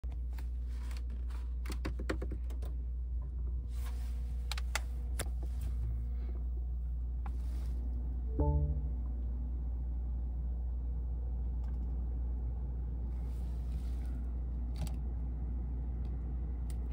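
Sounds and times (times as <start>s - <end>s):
steady low hum: 2.7s - 16.9s.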